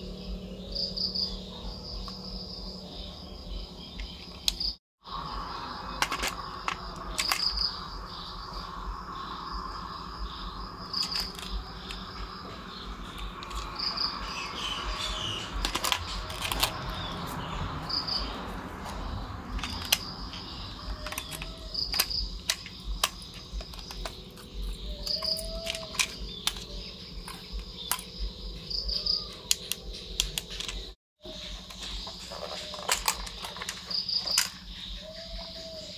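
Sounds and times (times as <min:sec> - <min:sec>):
crickets chirping: 0:00.0 - 0:35.9
plastic clicks and rattles: 0:06.0 - 0:07.6, 0:11.0 - 0:12.2, 0:13.1 - 0:13.8, 0:15.6 - 0:17.0, 0:19.5 - 0:28.1, 0:29.4 - 0:30.9, 0:31.7 - 0:34.6.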